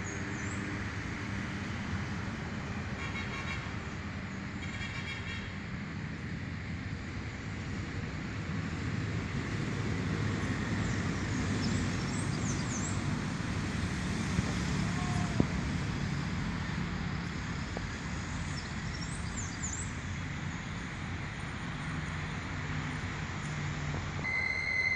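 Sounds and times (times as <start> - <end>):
road traffic rumble: 0.0 - 24.9.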